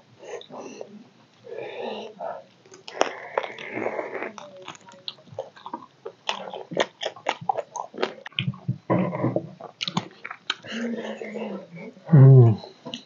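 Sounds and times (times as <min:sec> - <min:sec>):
person chewing meat: 0:02.3 - 0:08.7.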